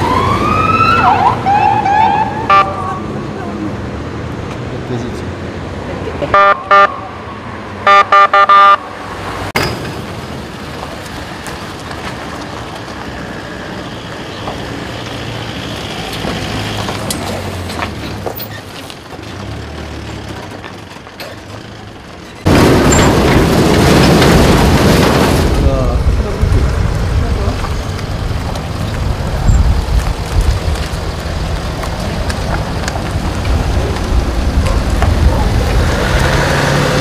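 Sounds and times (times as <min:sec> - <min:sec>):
street noise: 0:00.0 - 0:37.0
vehicle horn beeping: 0:06.3 - 0:07.2, 0:07.8 - 0:08.9.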